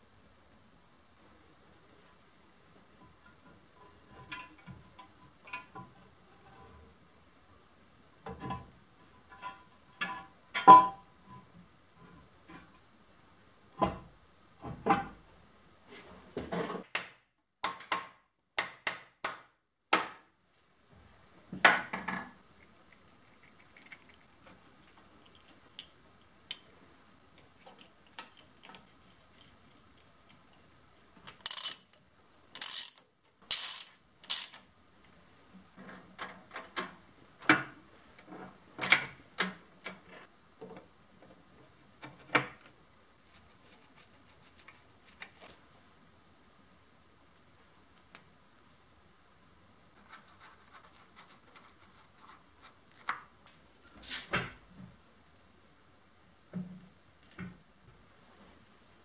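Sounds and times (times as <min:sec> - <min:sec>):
tools clinking on metal: 0:31.4 - 0:32.0, 0:32.6 - 0:34.6.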